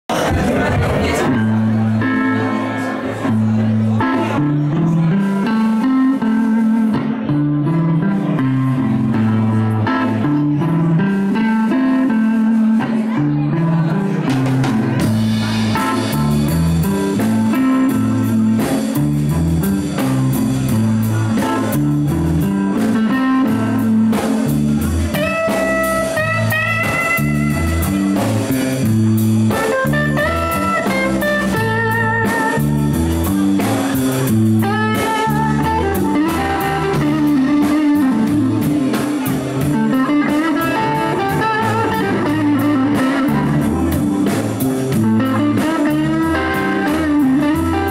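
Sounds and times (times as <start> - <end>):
bass line: 0.0 - 47.9
drum kit: 0.1 - 47.9
electric guitar lead: 0.1 - 47.9.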